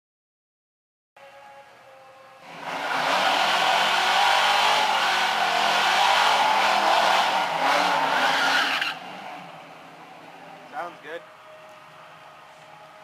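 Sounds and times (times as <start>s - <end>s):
car engine at high revs: 2.4s - 10.8s
tyres spinning and squealing: 2.6s - 9.4s.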